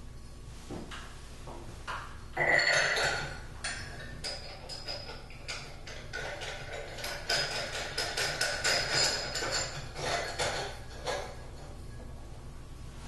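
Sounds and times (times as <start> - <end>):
glass shade clinking on metal: 2.4 - 11.4.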